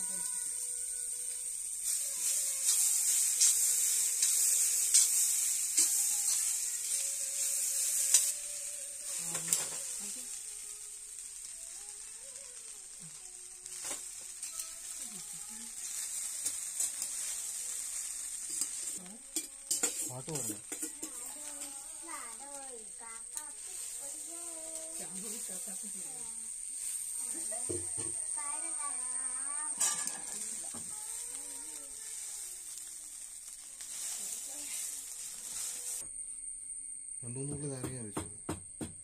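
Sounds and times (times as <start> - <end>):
food sizzling in a pan: 0.0 - 39.0
metal spoon stirring and scraping: 1.2 - 10.0, 13.7 - 22.0, 29.7 - 31.4.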